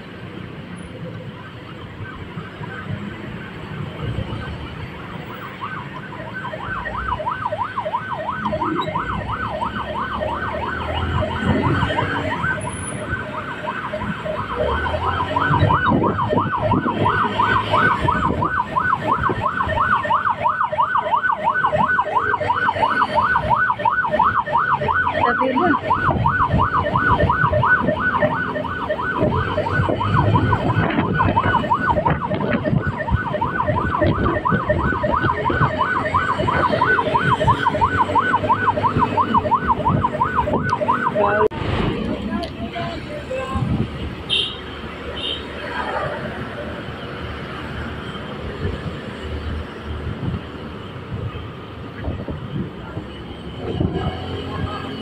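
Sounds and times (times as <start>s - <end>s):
road traffic noise: 0.0s - 55.0s
vehicle siren warbling: 0.9s - 41.6s, 52.1s - 55.0s.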